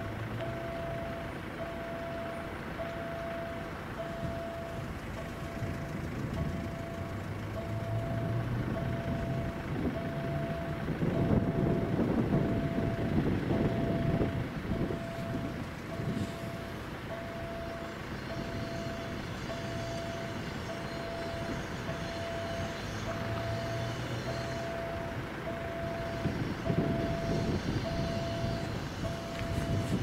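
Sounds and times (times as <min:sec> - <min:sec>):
level crossing signal beeping: 0:00.4 - 0:30.0
wind rumble on microphone: 0:04.0 - 0:07.3, 0:08.2 - 0:16.8, 0:25.5 - 0:30.0.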